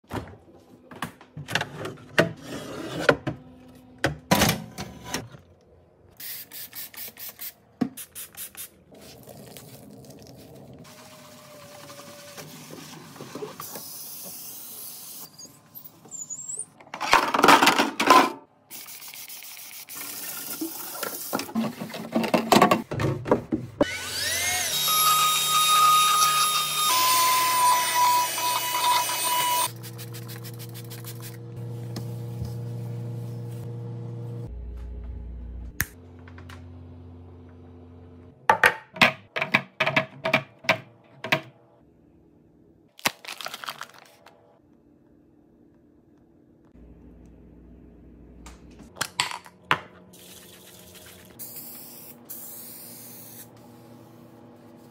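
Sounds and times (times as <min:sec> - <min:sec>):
handheld vacuum whine: 0:23.8 - 0:29.7.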